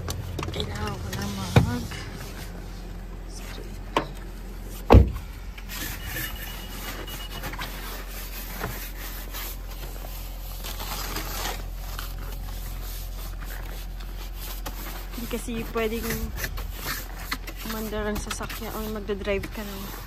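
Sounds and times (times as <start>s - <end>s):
brush sweeping snow off car: 5.7s - 20.0s.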